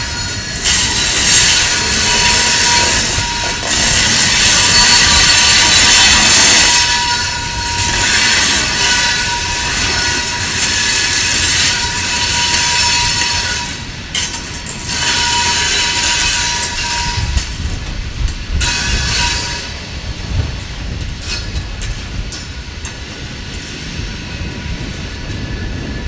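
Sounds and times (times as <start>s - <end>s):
wheels squealing: 0.0s - 19.9s
train wheels rumbling on track: 0.0s - 26.0s.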